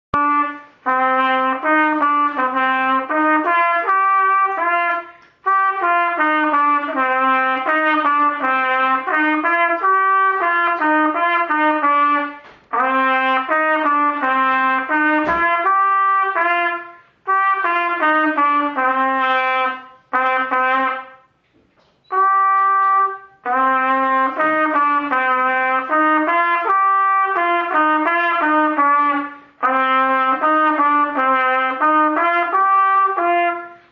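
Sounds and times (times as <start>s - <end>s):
solo trumpet melody: 0.1s - 33.9s.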